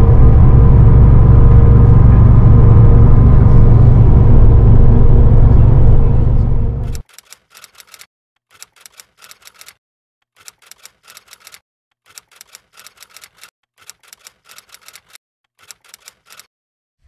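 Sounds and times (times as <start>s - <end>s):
typewriter key clicks: 7.0s - 9.8s, 10.4s - 16.5s.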